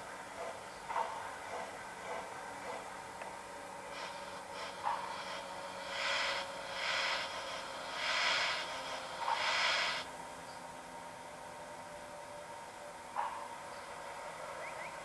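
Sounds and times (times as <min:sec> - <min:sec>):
model steam locomotive hissing: 0:03.7 - 0:10.1.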